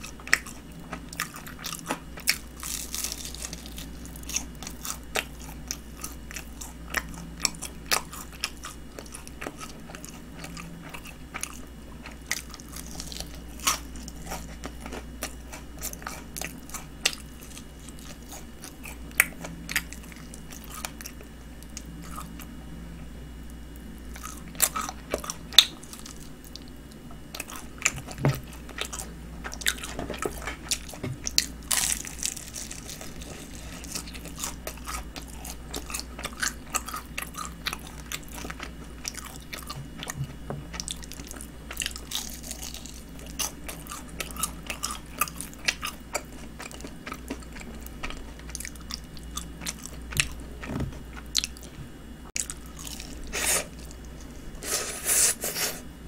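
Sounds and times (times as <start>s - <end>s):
crunching fried chicken: 0.0s - 22.6s, 23.5s - 51.8s, 52.4s - 55.7s.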